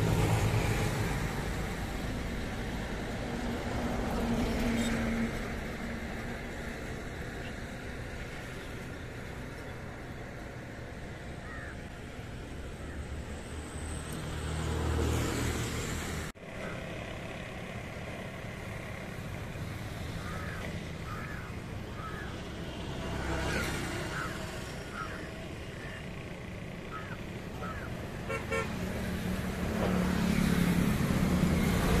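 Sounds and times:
city road traffic: 0:00.0 - 0:32.0
vehicle low rumble: 0:00.0 - 0:32.0
car horn tooting: 0:28.2 - 0:28.8.

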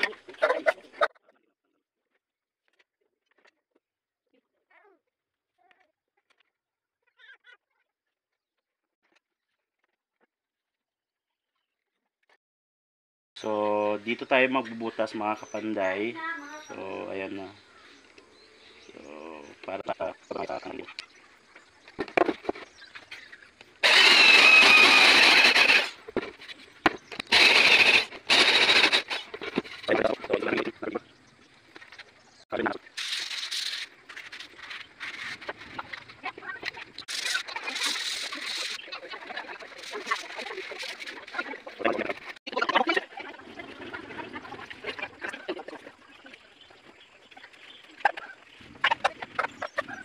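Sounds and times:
electric drill boring wood: 0:23.8 - 0:29.7
screw creaking into wood: 0:23.8 - 0:29.9.

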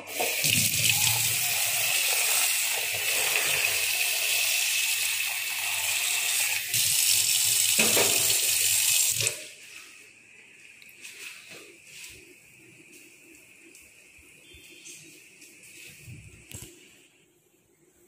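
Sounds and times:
tap water splashing into steel pot: 0:07.7 - 0:08.5.

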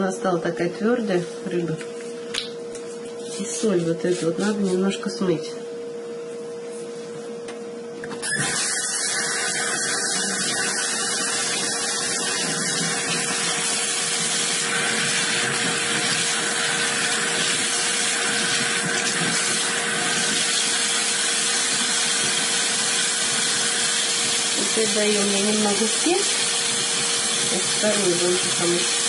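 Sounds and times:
kitchen tap running: 0:08.2 - 0:29.0.

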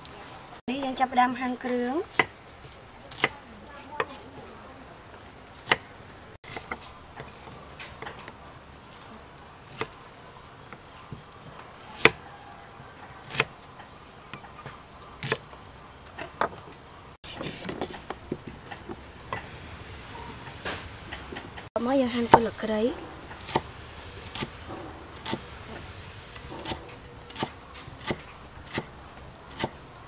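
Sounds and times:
faint steady hiss: 0:14.0 - 0:30.0.

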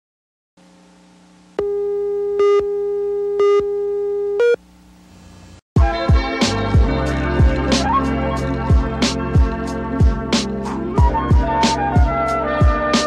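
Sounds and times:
faint hum: 0:00.6 - 0:05.6
music with drum beat: 0:05.8 - 0:13.0.

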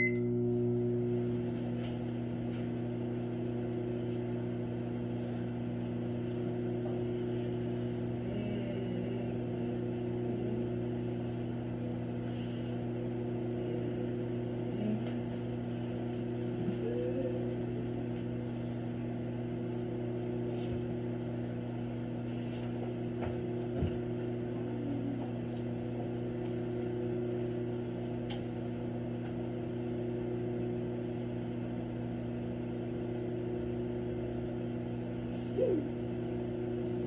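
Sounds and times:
microwave oven humming: 0:00.0 - 0:37.0.

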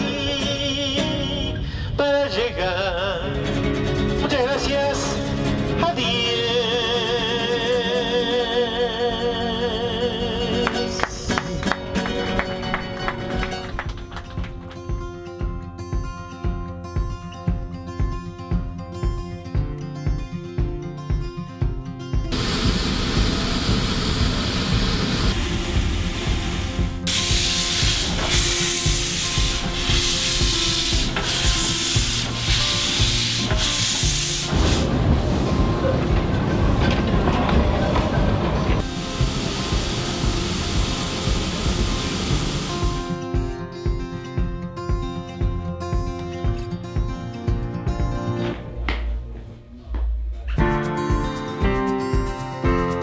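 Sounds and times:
acoustic guitar chords: 0:00.0 - 0:48.9, 0:50.6 - 0:53.0
steam locomotive hissing: 0:22.3 - 0:43.2.

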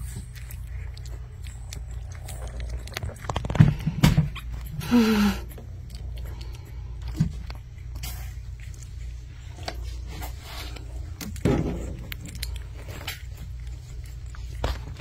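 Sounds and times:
low steady hum: 0:00.0 - 0:15.0
puppies rustling on carpet: 0:12.6 - 0:15.0.

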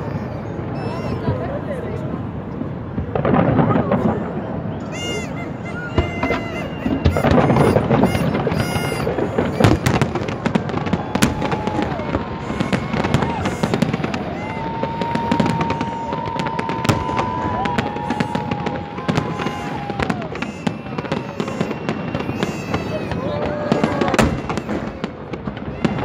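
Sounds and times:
fireworks bangs and crackles: 0:00.0 - 0:26.0
long high tone: 0:04.8 - 0:25.1.

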